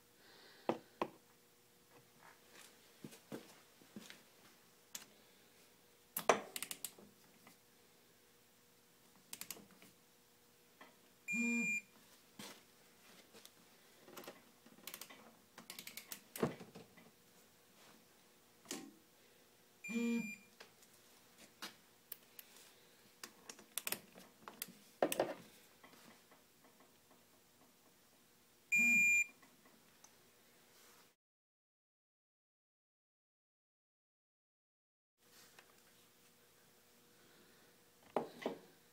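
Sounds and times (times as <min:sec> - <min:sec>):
short electronic beeps: 0:11.3 - 0:11.8, 0:19.9 - 0:20.5, 0:28.7 - 0:29.3
ratchet wrench clicking: 0:15.7 - 0:16.2.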